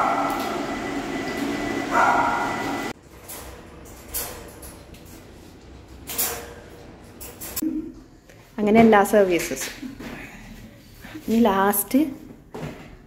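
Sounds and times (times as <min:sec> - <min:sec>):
dog barking: 0:00.0 - 0:00.4, 0:01.9 - 0:02.8
grooming dryer blowing: 0:00.0 - 0:03.0.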